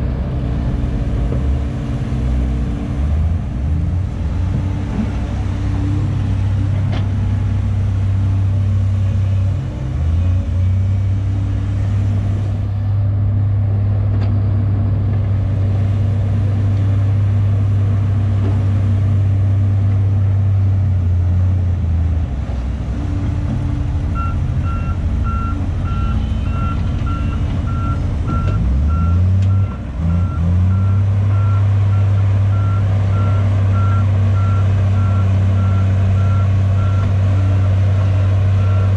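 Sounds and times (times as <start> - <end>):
heavy diesel engine running: 0.0 - 38.9
reversing alarm beeping: 24.2 - 37.1.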